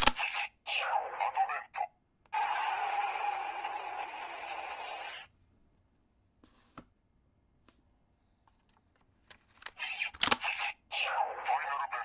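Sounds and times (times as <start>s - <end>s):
electronic toy sound effect: 0.0s - 5.3s, 9.8s - 12.0s.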